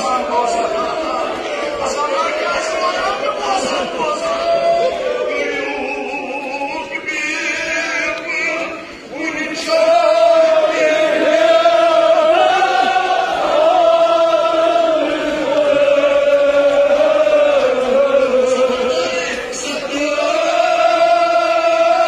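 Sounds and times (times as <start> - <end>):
men chanting together: 6.9 - 22.0.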